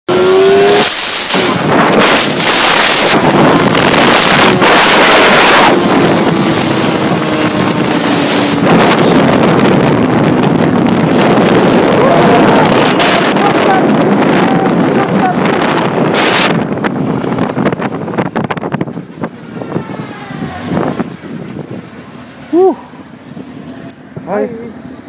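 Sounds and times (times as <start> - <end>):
wind buffeting microphone: 0.1 - 25.0
faint motorcycle engine: 18.8 - 25.0.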